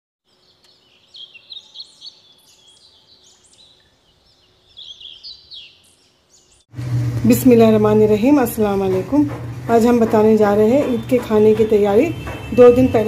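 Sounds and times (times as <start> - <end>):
small birds chirping: 0.3 - 6.7.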